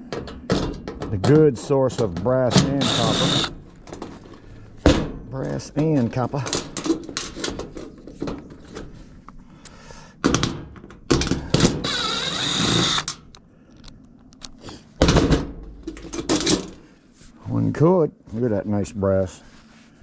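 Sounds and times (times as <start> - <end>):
cordless drill running: 2.6 - 3.5, 11.8 - 13.2.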